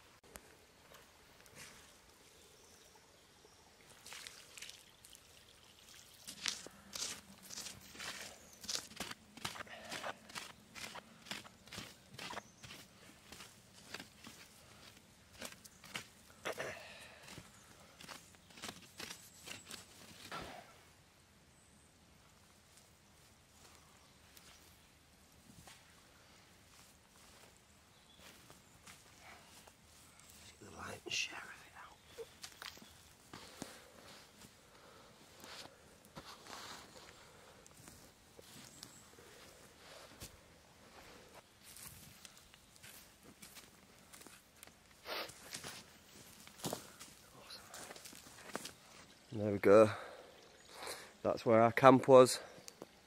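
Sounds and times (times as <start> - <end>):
water trickling onto ash: 3.9 - 14.7
hands scuffing soil and litter: 6.2 - 16.2, 17.2 - 20.4, 35.3 - 49.1.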